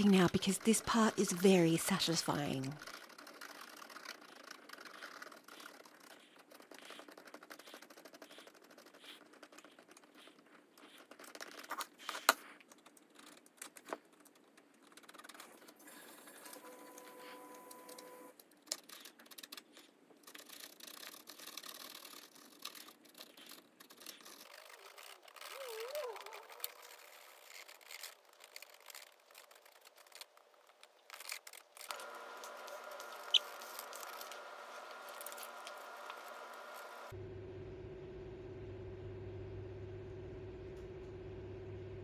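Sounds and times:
faint steady hum: 0:31.9 - 0:42.0.

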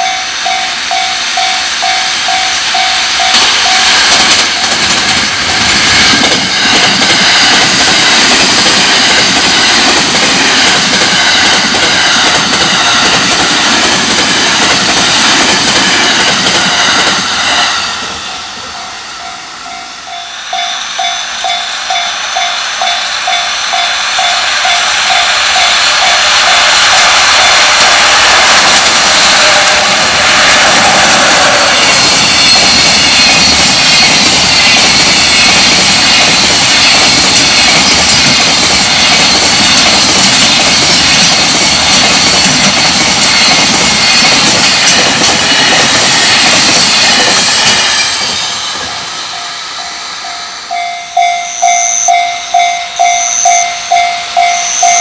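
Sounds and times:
freight train passing: 0:00.0 - 0:55.0
level crossing bell ringing: 0:49.3 - 0:55.0.

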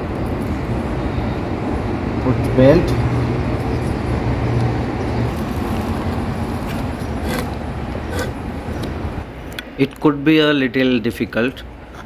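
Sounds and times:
machine rumble and hum: 0:00.0 - 0:09.6.

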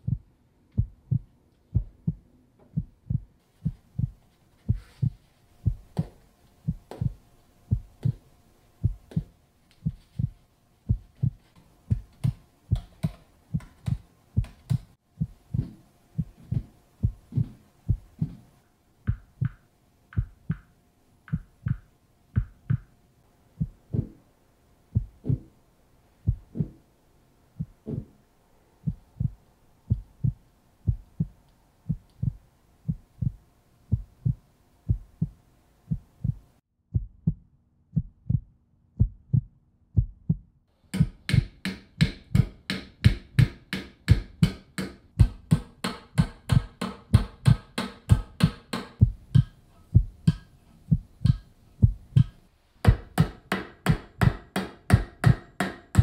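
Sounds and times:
heartbeat: 0:00.0 - 0:08.2, 0:08.8 - 0:18.4, 0:19.1 - 0:19.6, 0:20.2 - 0:20.7, 0:21.3 - 0:22.9, 0:23.6 - 0:24.2, 0:24.9 - 0:25.5, 0:26.2 - 0:26.8, 0:27.6 - 0:28.2, 0:28.8 - 0:41.5, 0:49.0 - 0:53.2.

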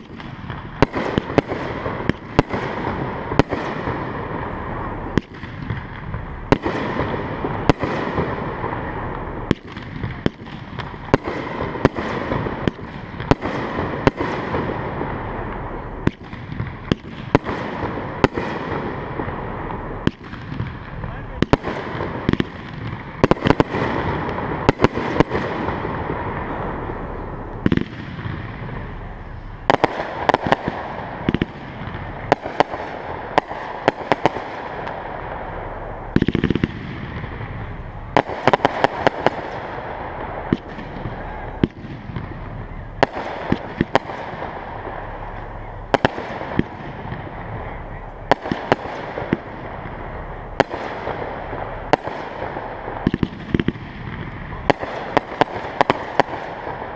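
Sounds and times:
fireworks bangs: 0:00.0 - 0:56.9
steady rushing noise: 0:00.0 - 0:56.9.

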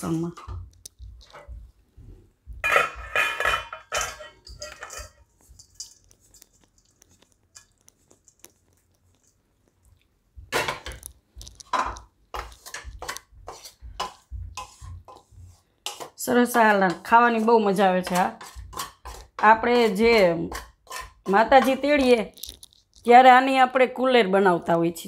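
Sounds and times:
pan scraping steel bowl: 0:02.6 - 0:07.7, 0:11.7 - 0:22.3.

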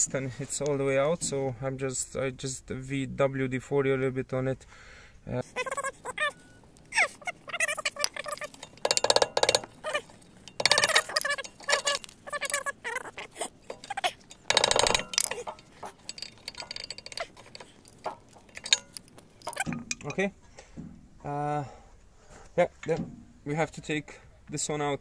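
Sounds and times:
metal clinking and rattling: 0:05.5 - 0:21.1.

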